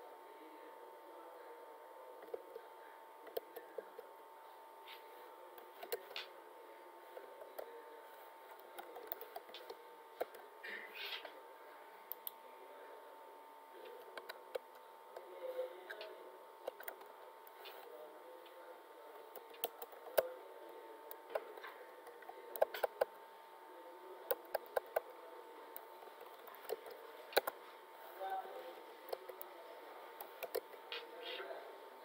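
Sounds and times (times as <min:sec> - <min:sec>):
computer keyboard keystrokes: 0:30.3 - 0:30.7.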